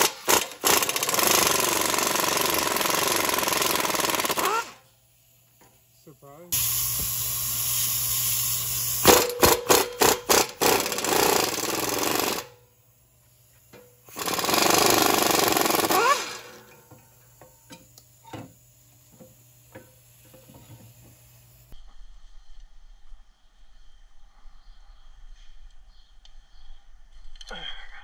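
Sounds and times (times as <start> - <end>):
air impact wrench hammering: 0.0 - 4.9, 6.6 - 12.7, 13.7 - 21.0.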